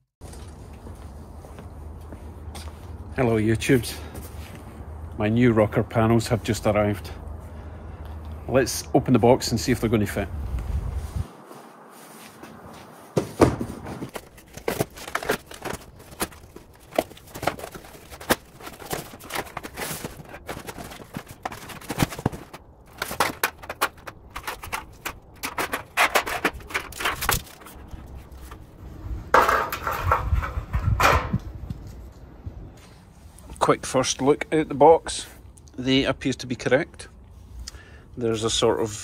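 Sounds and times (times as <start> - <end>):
cardboard tearing and rustling: 13.5 - 28.4.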